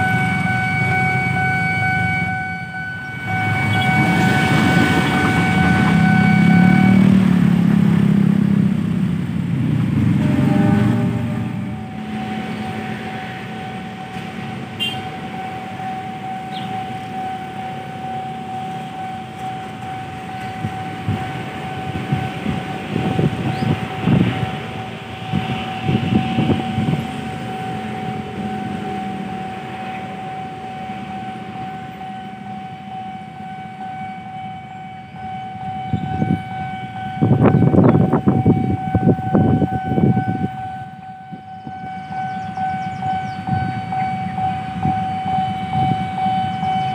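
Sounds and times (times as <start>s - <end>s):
level crossing alarm tone: 0.0s - 8.6s, 9.5s - 46.9s.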